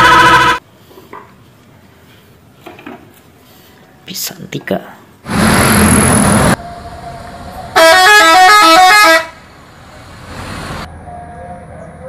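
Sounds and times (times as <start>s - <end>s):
musical bus horn tune: 0.0s - 0.6s, 6.6s - 9.4s, 11.0s - 12.0s.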